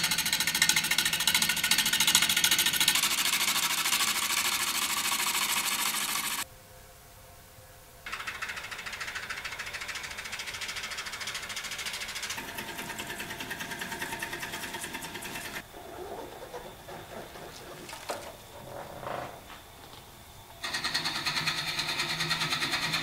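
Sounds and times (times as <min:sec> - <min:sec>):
lathe tool scraping wood: 0:00.0 - 0:06.4, 0:08.1 - 0:19.6.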